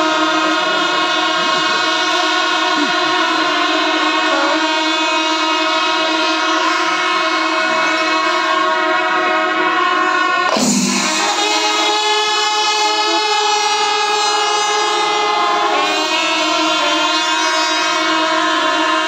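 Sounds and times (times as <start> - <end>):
pipes playing: 0.0 - 19.0
sustained horn blasts: 0.0 - 19.0
massed drums: 10.5 - 11.6.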